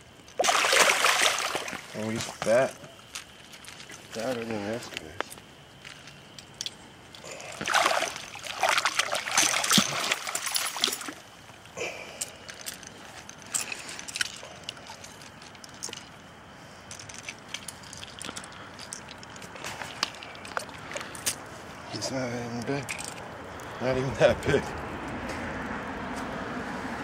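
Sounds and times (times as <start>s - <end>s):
water splashing and sloshing: 0.0s - 21.7s
water trickling: 0.2s - 4.7s, 6.5s - 11.7s.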